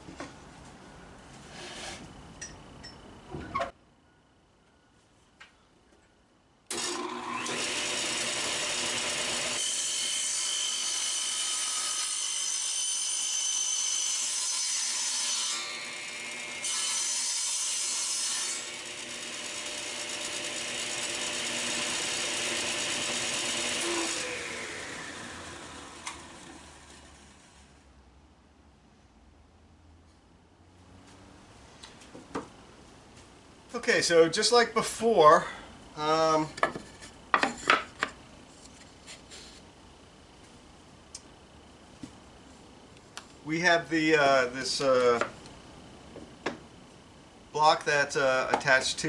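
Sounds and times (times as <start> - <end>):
table saw switch: 6.7 - 7.8
saw winding down whine: 6.7 - 9.6, 18.6 - 27.6
table saw cutting wood: 6.7 - 27.7.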